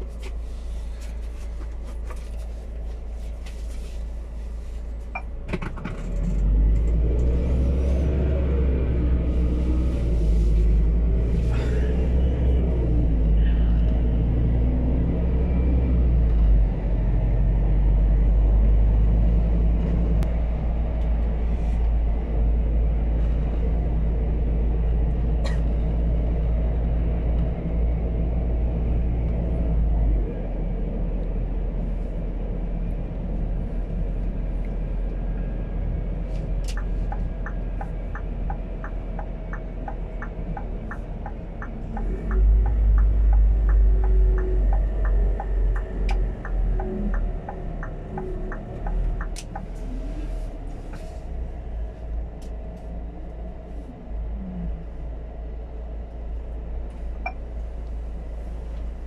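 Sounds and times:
truck engine and road rumble: 0:00.0 - 0:59.0
turn signal ticking: 0:36.6 - 0:49.9.

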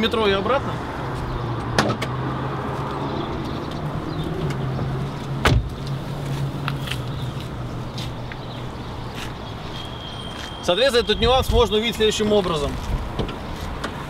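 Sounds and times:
car door heavy clunk: 0:05.4 - 0:05.8.

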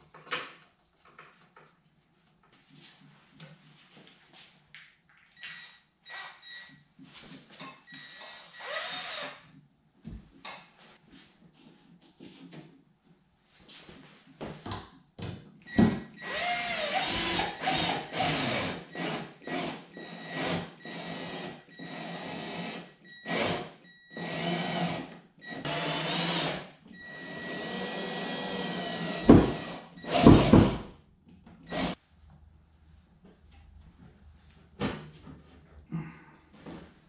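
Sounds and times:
cordless drill bursts: 0:08.1 - 0:09.4, 0:16.2 - 0:30.7, 0:31.7 - 0:32.0.

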